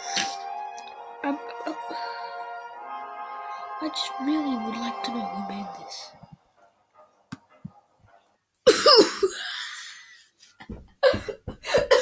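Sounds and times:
person coughing: 0:08.7 - 0:09.6, 0:11.0 - 0:12.0.

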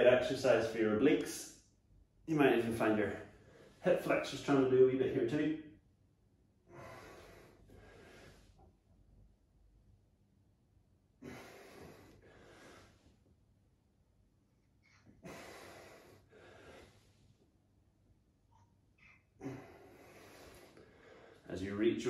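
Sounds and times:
faint slow breathing: 0:03.2 - 0:03.8, 0:06.6 - 0:08.8, 0:11.2 - 0:13.3, 0:14.8 - 0:17.5, 0:19.0 - 0:21.5.

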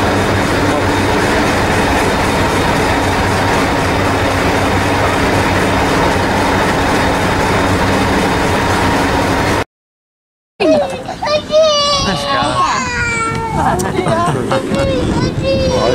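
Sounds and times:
diesel train engine idling: 0:00.0 - 0:09.6.

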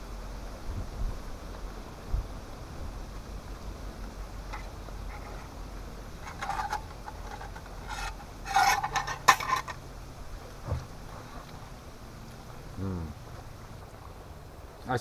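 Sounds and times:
low steady hiss: 0:00.0 - 0:15.0
rubbing and scraping: 0:04.4 - 0:09.8.

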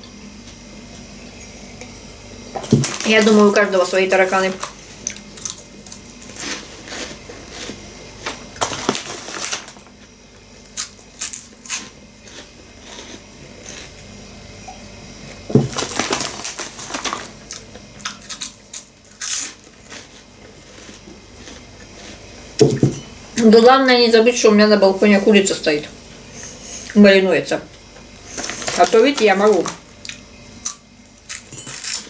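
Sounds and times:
chewing crunchy corn snacks: 0:04.4 - 0:10.1, 0:10.7 - 0:14.0, 0:15.7 - 0:22.8, 0:28.3 - 0:32.0.

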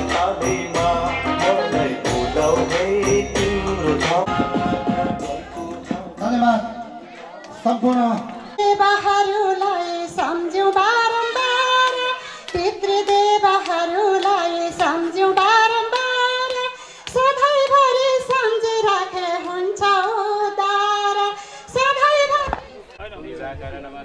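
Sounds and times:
woman singing into a microphone: 0:08.6 - 0:22.8.

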